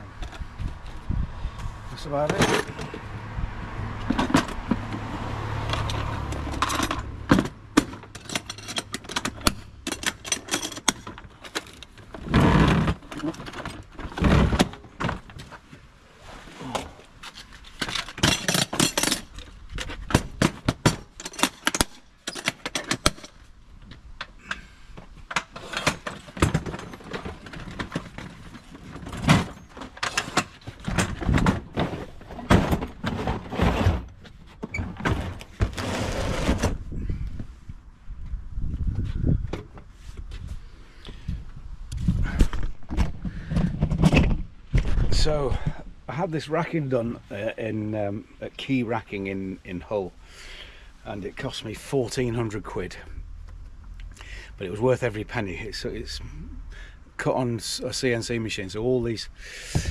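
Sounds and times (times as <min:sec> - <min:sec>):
metal tools clattering: 0:02.2 - 0:03.0, 0:07.8 - 0:12.0, 0:17.4 - 0:19.9, 0:20.8 - 0:23.4.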